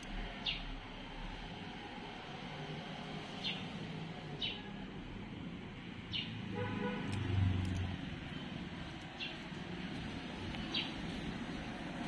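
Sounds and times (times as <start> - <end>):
small bird chirping: 10.4 - 11.3.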